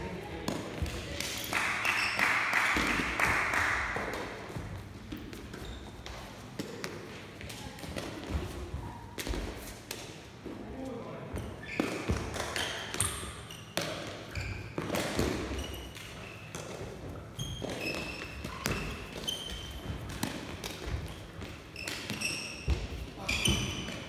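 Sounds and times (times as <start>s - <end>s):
sneaker squeaks: 1.4s - 2.4s, 4.4s - 9.7s, 11.4s - 24.0s.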